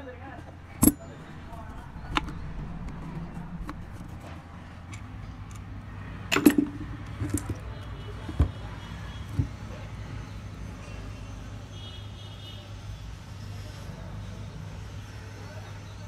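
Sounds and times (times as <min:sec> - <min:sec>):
steady low hum: 0:00.4 - 0:07.5
screwdriver clinking on metal: 0:00.6 - 0:05.7, 0:06.3 - 0:07.6
metal housing knocks: 0:06.3 - 0:07.6.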